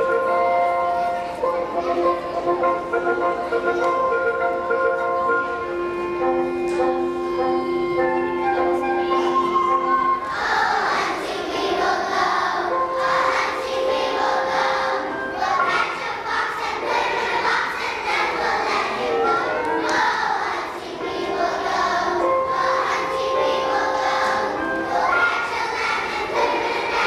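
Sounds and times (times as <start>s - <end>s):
musical accompaniment: 0.0s - 27.0s
children singing: 9.1s - 27.0s.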